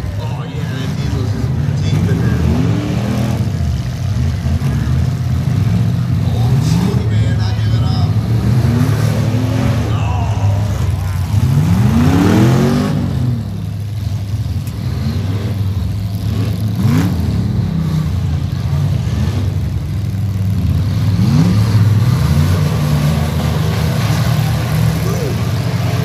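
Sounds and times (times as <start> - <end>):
truck engines revving: 0.0 - 26.0.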